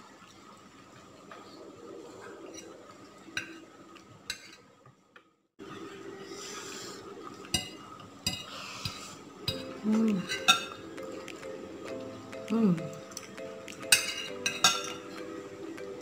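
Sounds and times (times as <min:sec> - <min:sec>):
clinks against plate: 0:13.9 - 0:15.0.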